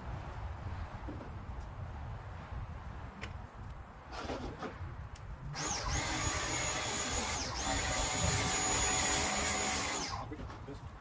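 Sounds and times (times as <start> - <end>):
pressure washer motor whining: 5.6 - 10.3.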